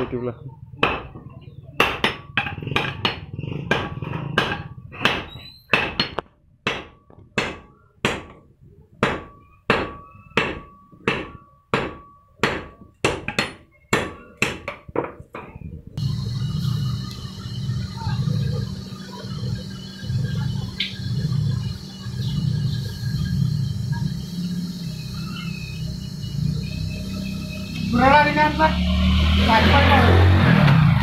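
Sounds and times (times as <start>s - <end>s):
hammers ringing on an anvil: 9.0s - 14.6s
steady low hum: 15.8s - 30.4s.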